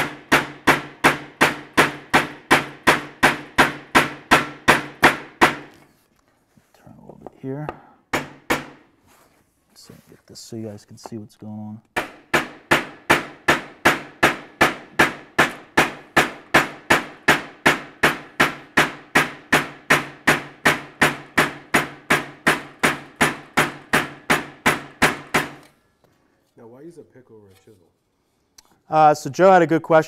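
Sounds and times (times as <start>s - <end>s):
hammer tapping sheet metal: 0.0s - 5.8s, 7.6s - 8.9s, 11.9s - 25.7s.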